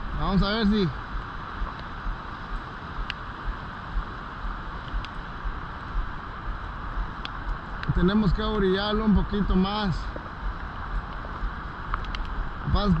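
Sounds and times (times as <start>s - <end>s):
river water flowing: 0.0s - 13.0s
light ticks: 1.6s - 1.9s, 2.5s - 3.2s, 4.8s - 5.2s, 7.2s - 8.0s, 10.1s - 12.4s.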